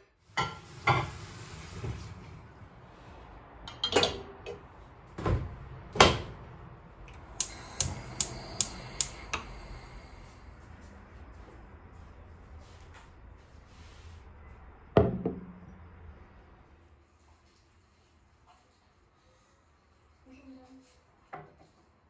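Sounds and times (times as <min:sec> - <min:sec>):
dishes knocking and clunking: 0:00.4 - 0:01.2, 0:03.7 - 0:04.6, 0:15.0 - 0:15.6
sharp clicks: 0:07.1 - 0:09.4.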